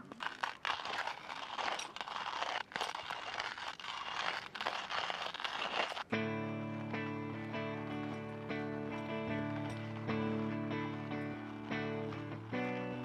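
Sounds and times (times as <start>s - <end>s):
hand coffee grinder grinding beans: 0.0s - 13.0s
music with sustained notes: 6.1s - 13.0s.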